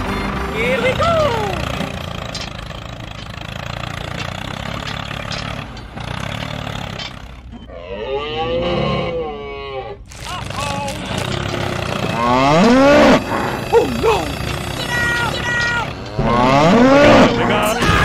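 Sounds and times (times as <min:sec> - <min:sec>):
tractor engine running: 0:00.0 - 0:07.7, 0:10.1 - 0:18.0
long mooing call: 0:07.7 - 0:10.0, 0:12.0 - 0:17.9.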